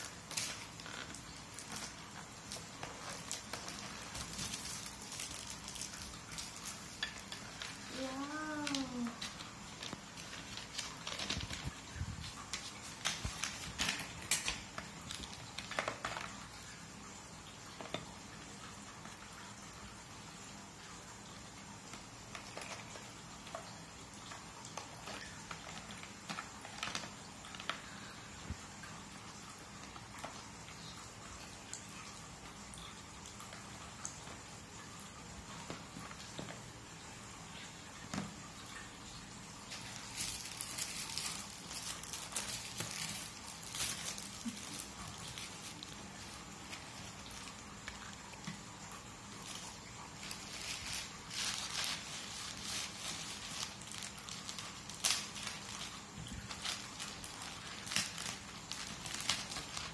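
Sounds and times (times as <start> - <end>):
plastic rustling and crinkling: 0.0 - 16.8, 21.9 - 28.9, 39.6 - 59.9
steady background hiss: 0.0 - 59.9.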